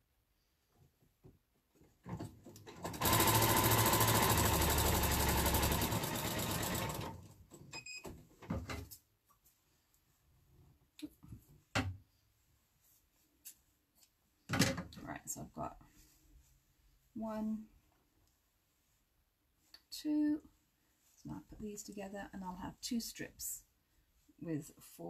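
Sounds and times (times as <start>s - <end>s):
sewing machine stitching: 2.2s - 7.4s.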